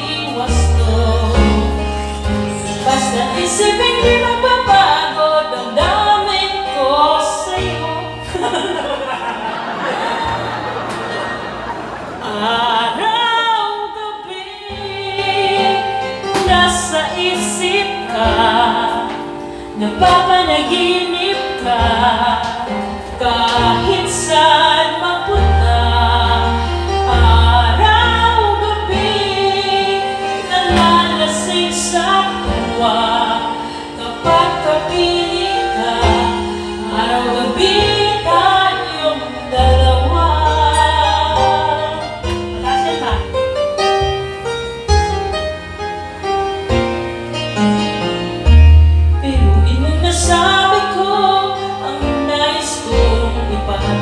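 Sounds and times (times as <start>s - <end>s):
backing track with bass: 0.0s - 5.0s, 14.9s - 51.3s
woman singing karaoke: 0.0s - 9.7s, 12.2s - 44.2s, 49.1s - 54.0s.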